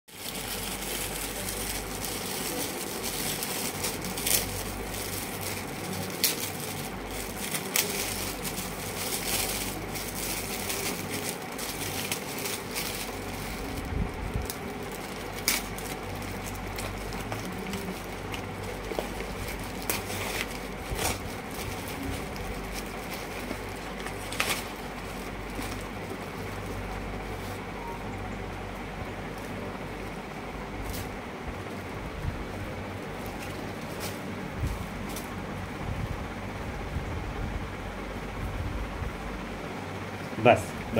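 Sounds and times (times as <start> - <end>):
foil gift wrap crinkling and tearing: 0.1 - 27.7
paper and cardboard rustling: 0.1 - 27.7
low background hum: 0.1 - 40.9.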